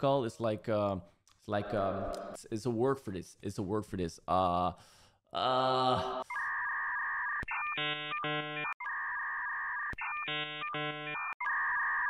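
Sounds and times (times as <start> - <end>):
electronic beeping tune: 6.3 - 12.0.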